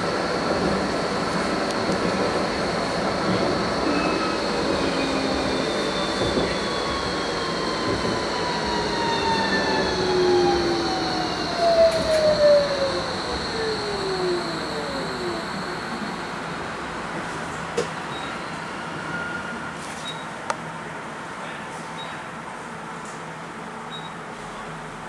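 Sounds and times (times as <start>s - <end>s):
tram wheels rumbling on track: 0.0s - 21.4s
electric drive whine: 1.7s - 16.6s.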